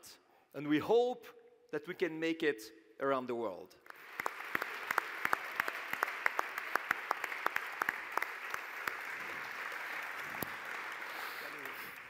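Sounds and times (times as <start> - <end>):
large audience applauding: 3.9 - 12.0.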